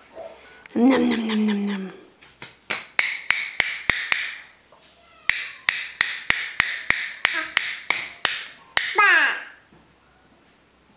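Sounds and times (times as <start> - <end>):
sharp snapping clicks: 2.4 - 4.4.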